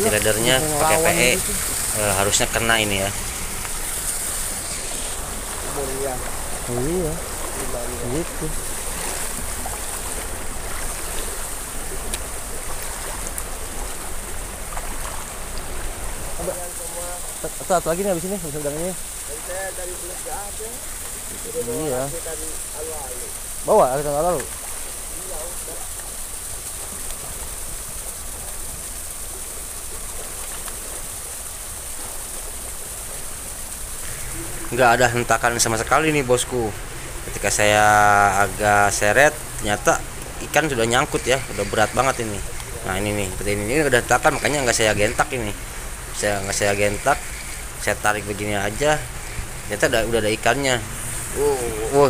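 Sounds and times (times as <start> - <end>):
sea water splashing against rocks: 0.0 - 46.6
faint ticks: 12.0 - 14.0.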